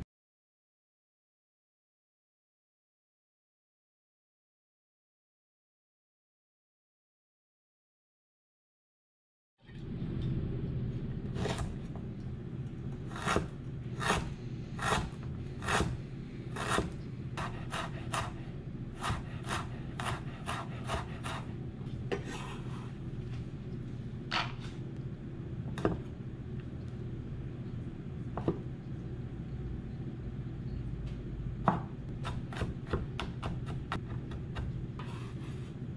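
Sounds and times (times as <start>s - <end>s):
steady low hum: 9.6s - 35.9s
knife chopping on wooden board: 13.1s - 16.0s, 16.6s - 18.4s, 19.0s - 21.5s, 28.4s - 28.6s, 31.6s - 35.2s.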